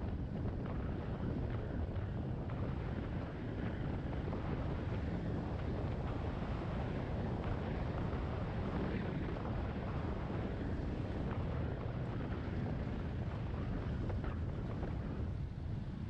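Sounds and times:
wind rush over microphone: 0.0 - 16.0.

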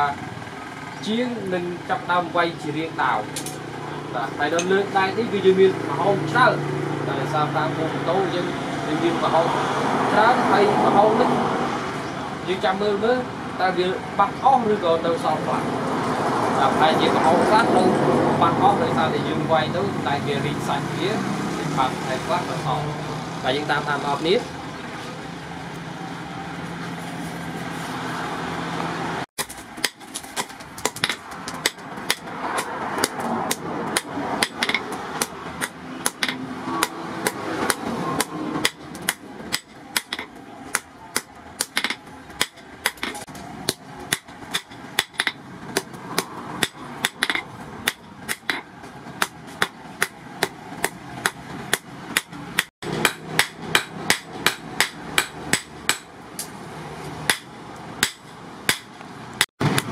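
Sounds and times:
sledgehammers striking metal on anvil: 29.4 - 56.6, 57.3 - 59.0.

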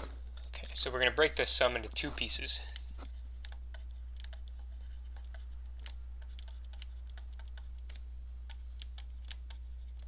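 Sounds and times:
low hum: 0.0 - 10.0
stylus tapping on tablet screen: 3.4 - 10.0.

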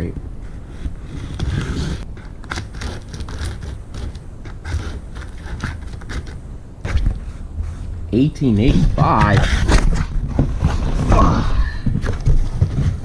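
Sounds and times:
knife slicing tape and cardboard: 1.2 - 7.2.

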